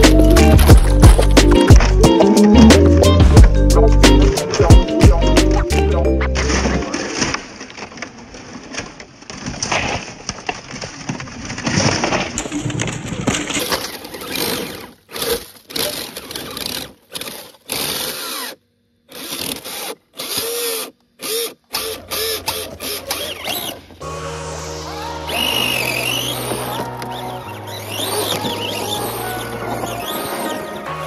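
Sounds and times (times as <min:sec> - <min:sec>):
electric motor and gears whining: 0:00.0 - 0:04.7, 0:13.5 - 0:24.2, 0:25.3 - 0:31.0.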